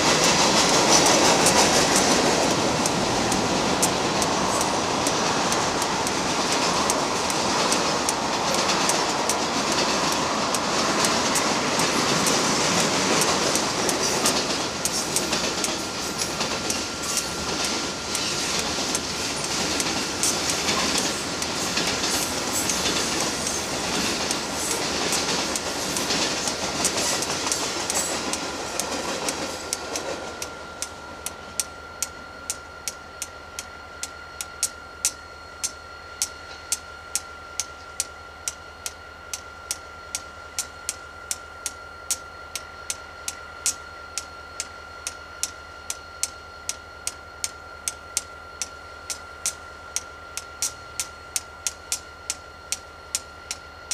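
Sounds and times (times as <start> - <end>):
wheels clicking over rail joints: 0.0 - 32.6
freight train rolling past: 0.0 - 53.9
regular ticking: 0.2 - 53.9
faint steady tone: 1.0 - 53.9.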